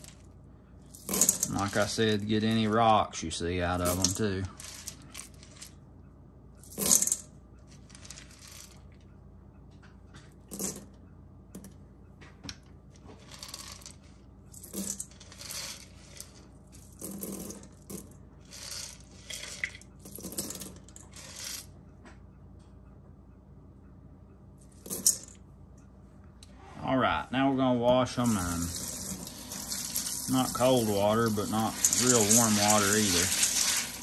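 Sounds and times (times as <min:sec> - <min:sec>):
dry beans clattering into colander: 0:01.0 - 0:02.6, 0:03.7 - 0:05.7, 0:06.7 - 0:07.2, 0:13.2 - 0:14.0, 0:14.6 - 0:21.6, 0:28.2 - 0:34.0.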